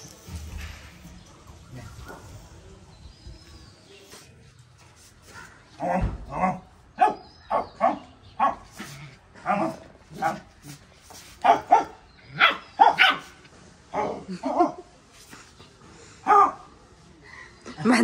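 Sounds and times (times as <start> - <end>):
puppy barking: 11.4 - 13.4.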